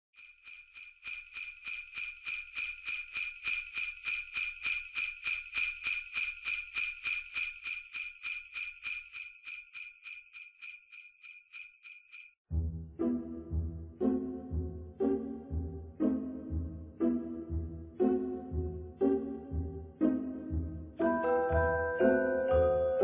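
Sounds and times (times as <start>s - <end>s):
jingle bells shaken: 0.2s - 12.4s.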